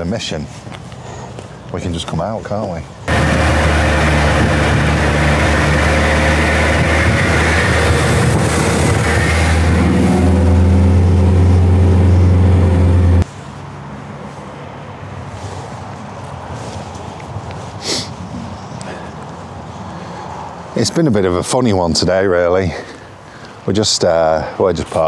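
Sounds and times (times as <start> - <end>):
road and wind noise: 0.0 - 25.0
van engine running: 3.1 - 13.2.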